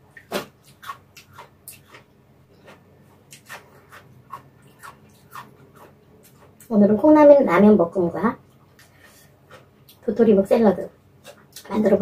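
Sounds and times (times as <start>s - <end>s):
wet chewing clicks and smacks: 0.1s - 6.7s.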